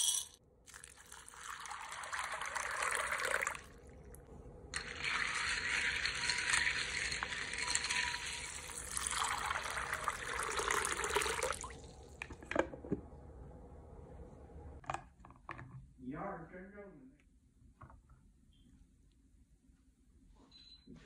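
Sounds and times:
water pouring into bowl: 0.7s - 4.2s, 4.8s - 12.1s
chickpeas stirred with spoon: 4.8s - 10.1s.

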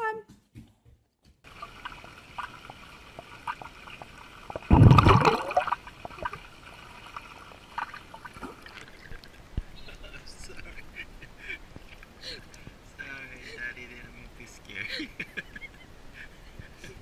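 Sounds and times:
pool water sloshing: 1.5s - 9.8s
loud splashing: 4.4s - 9.0s.

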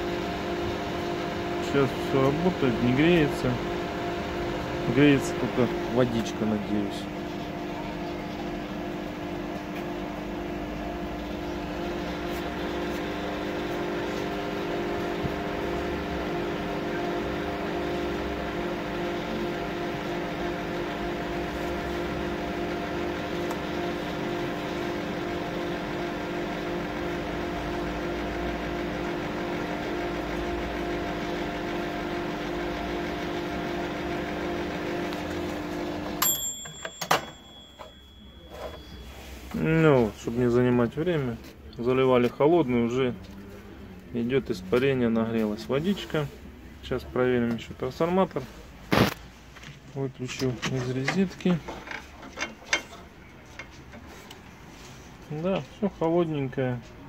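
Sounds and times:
microwave oven humming: 0.0s - 42.0s
timer bell ringing: 36.2s - 39.3s.

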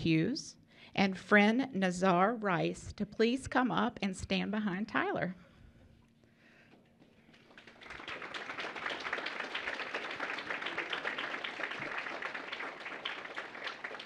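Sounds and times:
applause: 7.2s - 14.0s.

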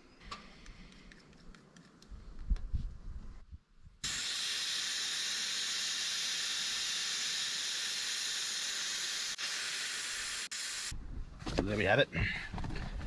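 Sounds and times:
air hissing out of tyre: 4.0s - 10.9s.

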